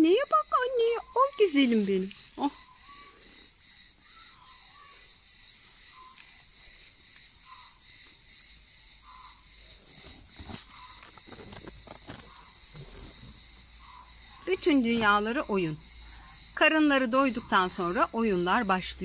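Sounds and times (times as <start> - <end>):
high-pitched insect chorus: 0.0 - 19.0
kittens scuffling on gravel: 9.8 - 13.6.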